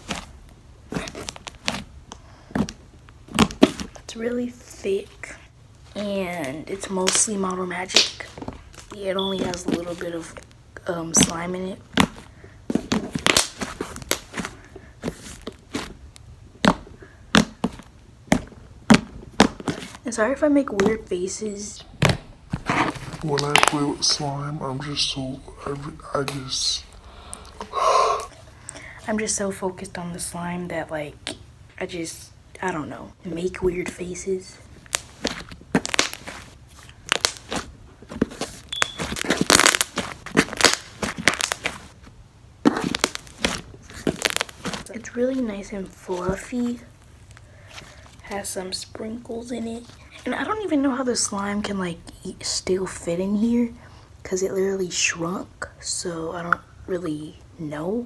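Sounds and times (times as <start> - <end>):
slime crackling and squishing: 0.0 - 21.0, 22.0 - 24.2, 33.8 - 51.3.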